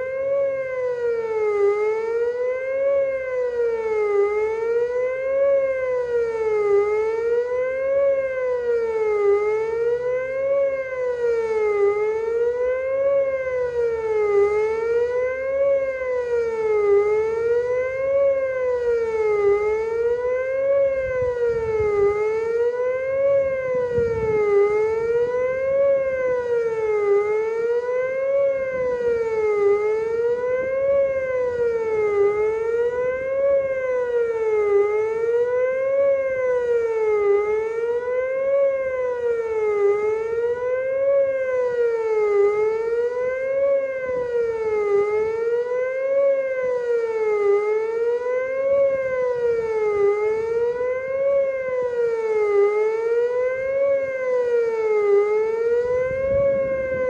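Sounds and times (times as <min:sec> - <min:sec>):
tornado siren wailing: 0:00.0 - 0:57.0.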